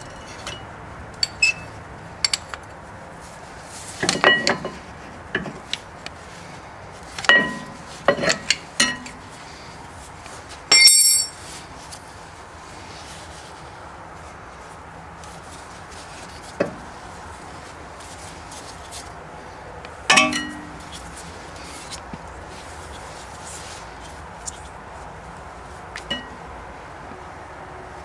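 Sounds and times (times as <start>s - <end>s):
bright metallic ring: 10.7s - 11.4s.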